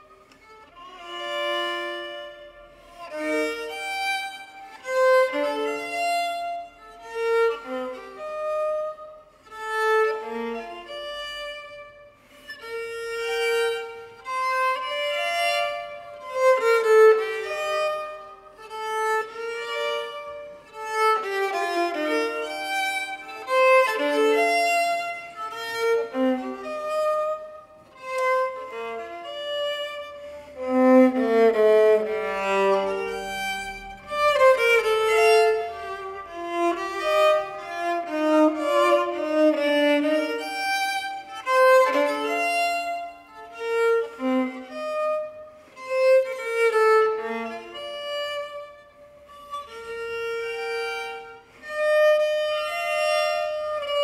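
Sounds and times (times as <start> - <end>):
bowed string instrument melody: 0.0 - 54.0.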